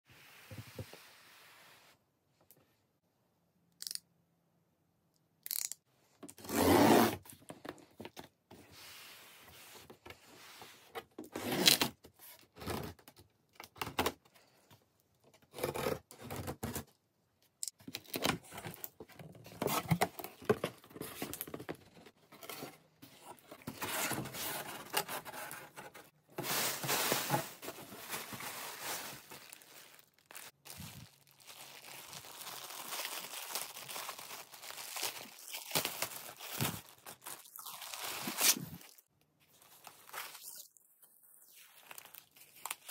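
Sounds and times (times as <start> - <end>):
plastic packing rustling: 18.1 - 38.9.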